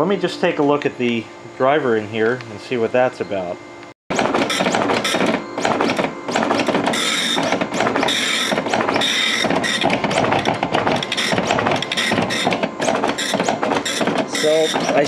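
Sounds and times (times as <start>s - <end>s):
dot matrix printer buzzing: 4.1s - 15.0s
harsh high printer bursts: 4.1s - 15.0s.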